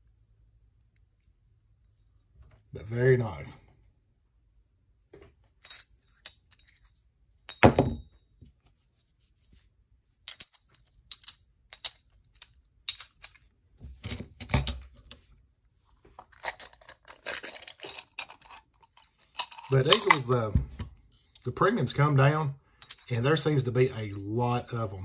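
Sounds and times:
coins clinking: 16.5s - 20.4s.

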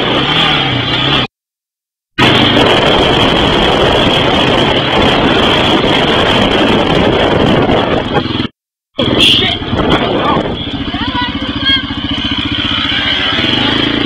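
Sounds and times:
wind rushing on microphone: 2.2s - 11.4s
atv engine running: 2.2s - 14.0s.

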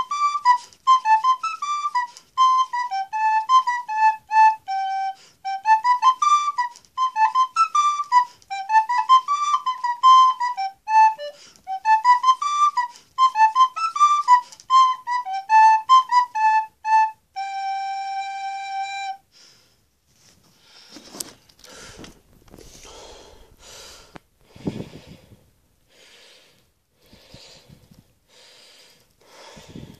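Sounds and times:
recorder playing notes: 0.0s - 19.3s
rustling close to microphone: 20.0s - 25.5s
breathy puffs on microphone: 20.4s - 26.4s, 28.8s - 29.9s.

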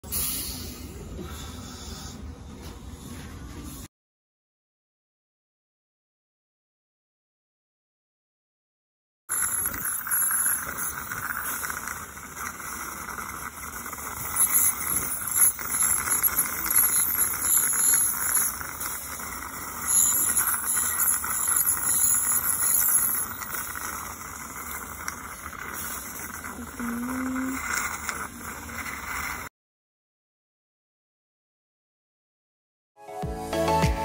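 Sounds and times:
dental equipment hissing: 0.1s - 2.1s, 9.3s - 29.5s
high-pitched dental squealing: 9.3s - 29.5s.

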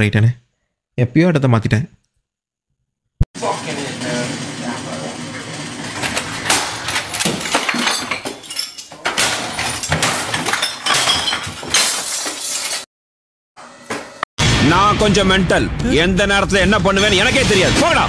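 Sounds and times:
objects crashing and breaking: 5.9s - 12.9s
glassy clinks: 7.7s - 9.0s, 10.6s - 12.7s.

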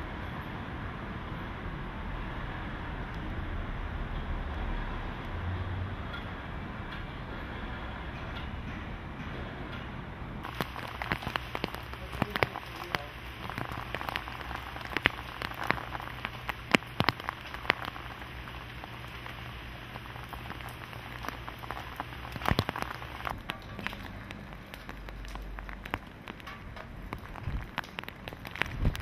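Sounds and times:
raindrops on hard wet surface: 0.0s - 29.0s
faint steady hiss: 10.4s - 29.0s.

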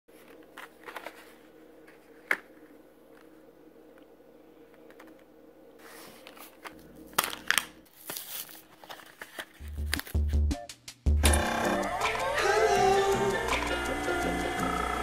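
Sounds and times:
plastic packaging crinkling and tearing: 6.2s - 10.2s.

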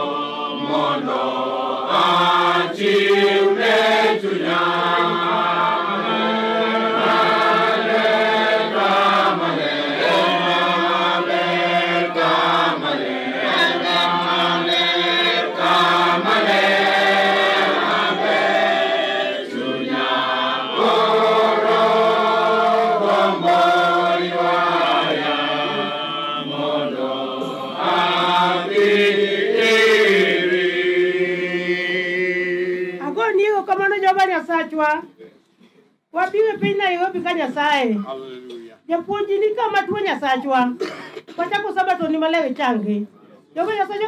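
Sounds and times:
group singing a hymn: 0.0s - 33.1s.

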